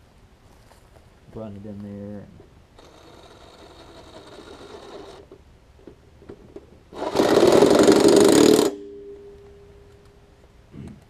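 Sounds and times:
faint steady hum: 0.0s - 11.0s
impact driver spinning: 2.8s - 5.3s, 6.9s - 8.9s
impact driver rapid hammering: 7.0s - 8.8s.

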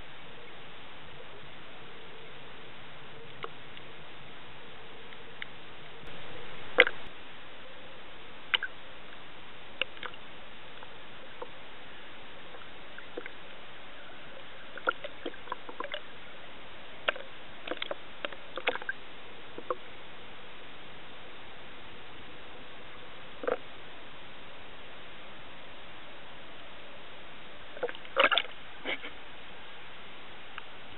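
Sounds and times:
sharp clicks and pops: 17.1s - 19.0s.

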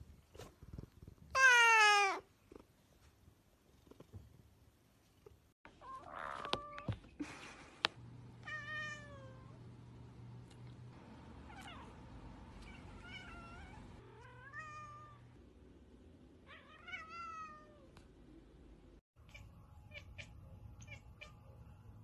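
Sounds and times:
cats meowing: 1.4s - 2.3s, 5.8s - 7.0s.

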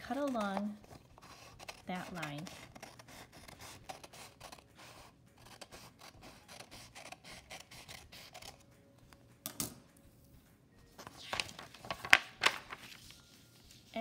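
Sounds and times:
scissors snipping paper: 0.0s - 8.6s.

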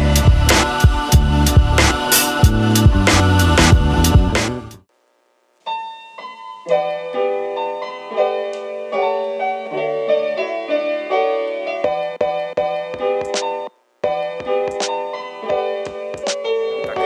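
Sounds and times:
keyboard melody: 5.7s - 17.0s.

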